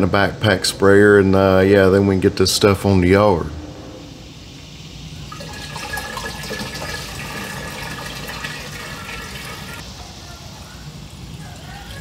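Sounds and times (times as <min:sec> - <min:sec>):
liquid pouring into a tank: 0:05.3 - 0:09.8.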